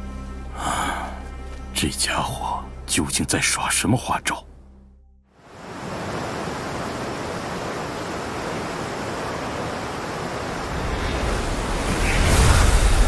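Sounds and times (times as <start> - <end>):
waterfall rushing: 5.4 - 13.0.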